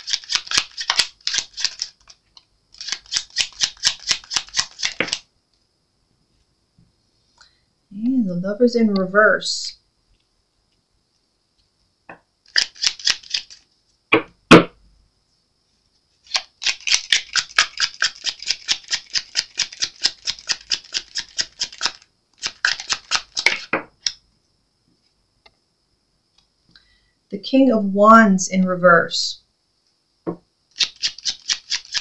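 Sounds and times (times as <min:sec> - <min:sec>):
cards shuffling: 0:00.0 - 0:05.3, 0:12.5 - 0:13.7, 0:16.2 - 0:23.8, 0:30.8 - 0:32.0
deck knocked on table: 0:14.2 - 0:14.8.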